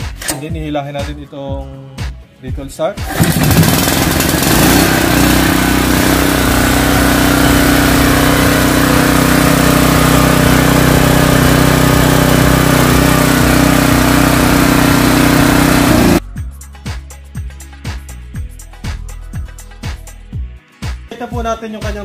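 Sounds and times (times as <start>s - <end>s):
generator engine running: 3.0s - 16.2s.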